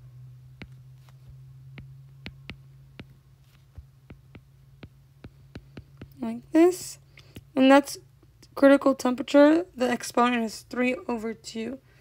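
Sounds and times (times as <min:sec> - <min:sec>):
steady low hum: 0:00.0 - 0:12.0
stylus tapping on glass screen: 0:00.6 - 0:06.2.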